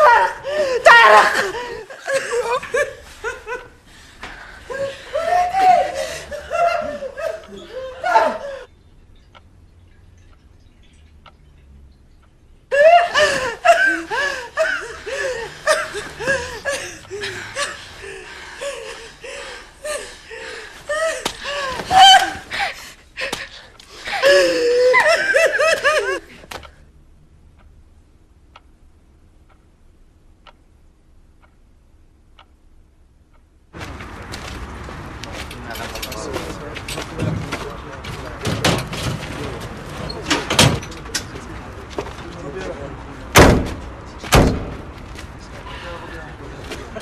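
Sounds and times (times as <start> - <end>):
young women laughing: 0.0 - 3.8, 4.6 - 8.7, 12.7 - 26.5.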